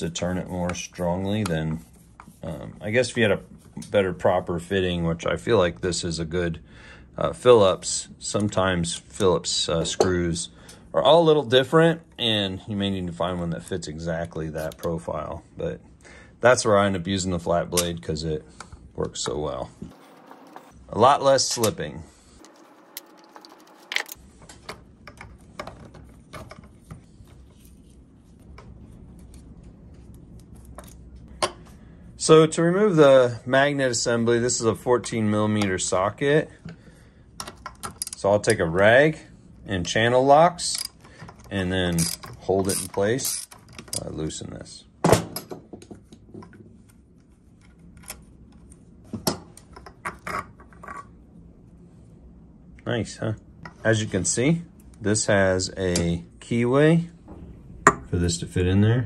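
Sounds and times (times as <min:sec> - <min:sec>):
screwdriver turning screws: 0:42.0 - 0:44.0.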